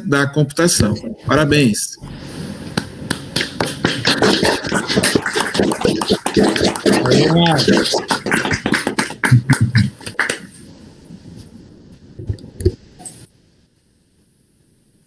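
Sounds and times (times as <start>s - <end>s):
people clapping: 3.1s - 10.6s
person speaking: 3.6s - 10.5s.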